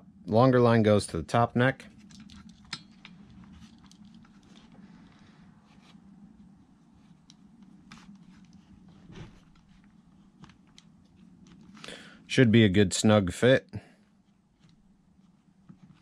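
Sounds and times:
steady low hum: 0.0 - 16.0
rubber hoses rubbing and clicking: 1.9 - 11.9, 14.1 - 16.0.

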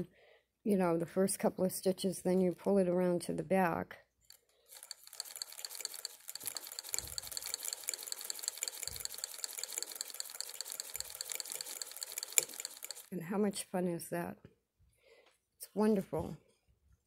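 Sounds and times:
hand-crank sewing machine clicking: 4.2 - 13.2.

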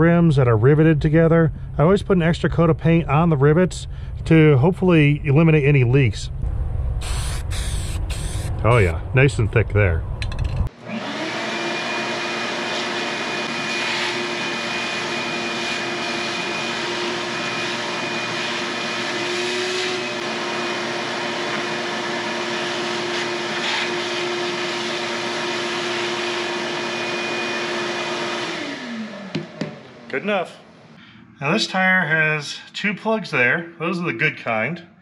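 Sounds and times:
vacuum whining: 6.3 - 9.0, 10.7 - 31.6
vacuum nozzle inside a tire: 7.0 - 8.8, 11.9 - 25.9.

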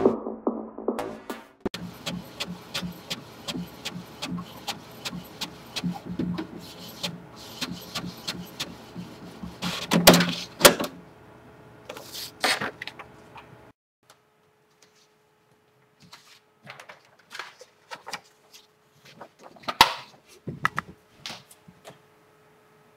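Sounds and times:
printer motor hum: 1.8 - 10.8
printer paper feeding out: 1.8 - 10.8.

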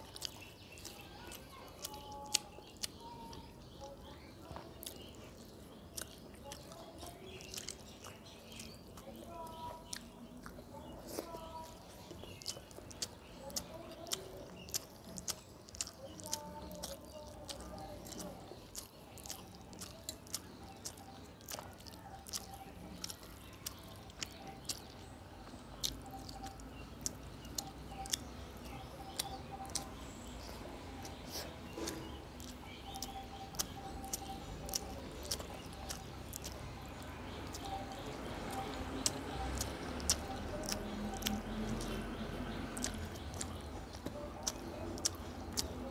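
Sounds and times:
lip-smacks and mouth clicks: 0.0 - 45.9
person chewing food: 0.0 - 45.9.

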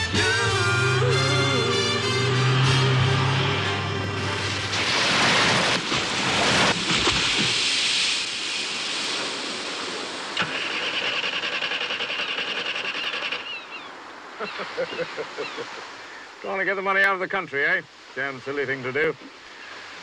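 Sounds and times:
song: 0.0 - 4.8
car engines running: 0.8 - 4.9
fast even engine pulse: 0.8 - 5.8, 10.4 - 13.4
water rushing and splashing: 0.9 - 20.0.

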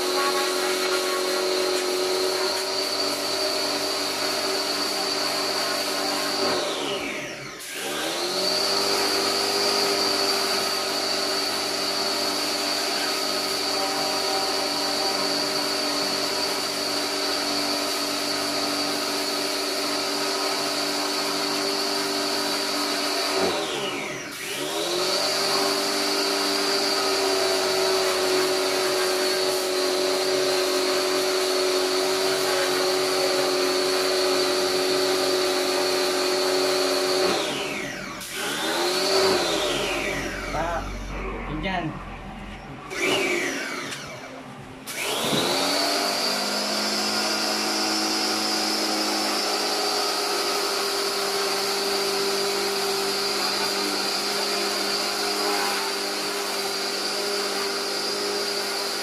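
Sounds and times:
water jet hissing: 0.0 - 6.4
pressure washer motor running: 0.0 - 59.0.

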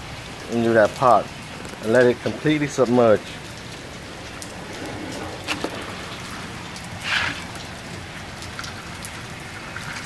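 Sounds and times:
rush of water: 0.0 - 10.0
water from hose into pot: 0.0 - 10.0.

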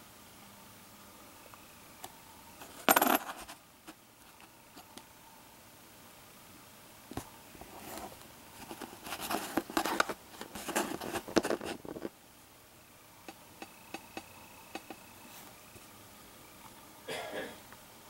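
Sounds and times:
coins clicking: 2.6 - 3.4
coins rustling and scraping on cardboard: 2.6 - 3.6, 7.8 - 12.1.

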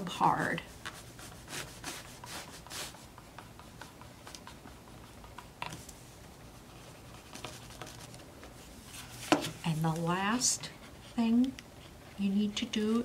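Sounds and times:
fingertip rubbing on paper: 0.8 - 5.2.

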